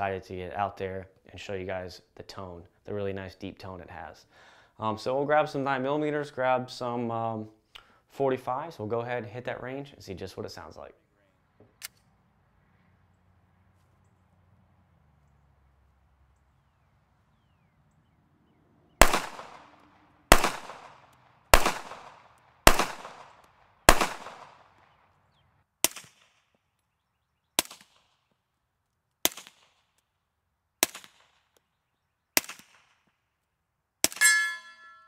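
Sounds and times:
pistol shots with ringing tail: 19.0 - 24.7
suppressed pistol shots: 19.0 - 24.9, 32.4 - 32.9.

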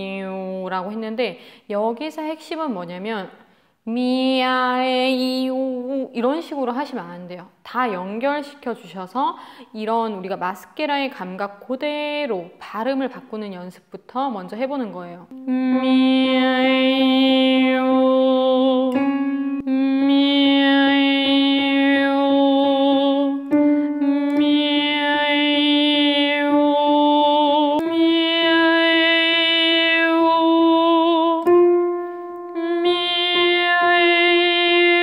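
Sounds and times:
woman singing vocal exercise: 3.1 - 6.8, 15.1 - 35.0.

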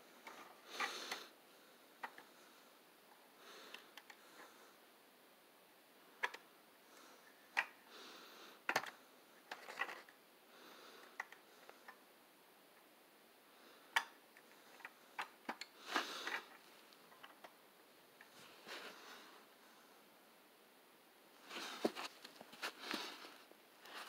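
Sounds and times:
toy truck clicks and taps: 8.7 - 8.9
soft rustles: 18.2 - 19.4, 21.4 - 24.0.

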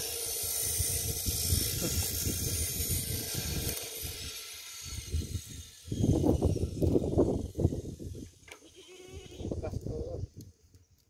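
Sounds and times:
wind buffeting microphone: 0.5 - 8.5
goat bleating loudly: 8.6 - 9.6.

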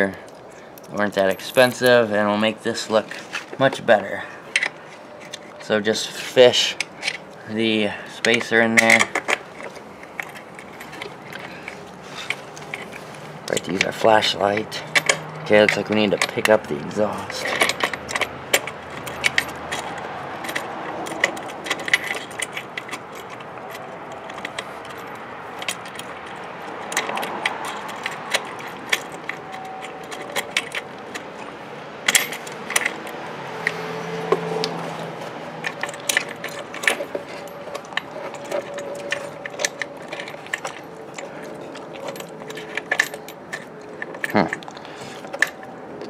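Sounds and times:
bolt clinking on metal bracket: 4.5 - 5.8, 6.6 - 46.0.

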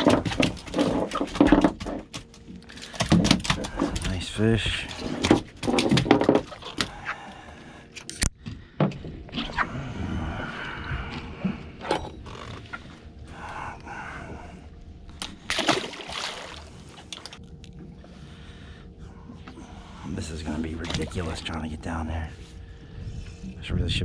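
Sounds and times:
water sloshing at hull: 0.0 - 23.8
short splash into water: 15.5 - 16.7.

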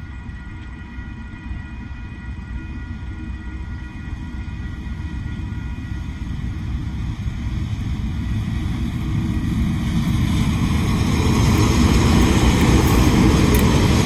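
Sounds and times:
locomotive engine rumble: 0.0 - 14.0.

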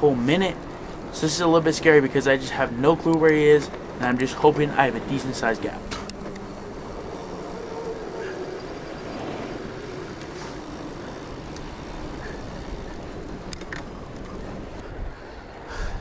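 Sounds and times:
bike riding noise on trail: 0.0 - 16.0
sharp clicks: 5.8 - 6.5.

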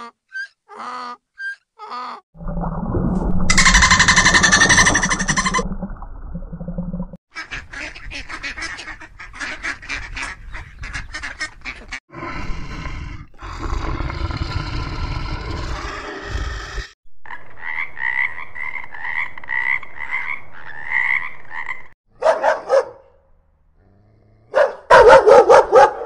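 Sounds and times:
ducks quacking: 7.3 - 12.0
rough animal sound: 12.1 - 17.0.

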